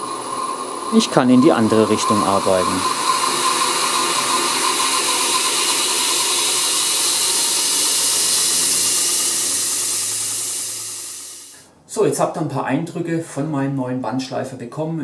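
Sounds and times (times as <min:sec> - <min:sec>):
belt grinder whirring: 0:00.0 - 0:11.6.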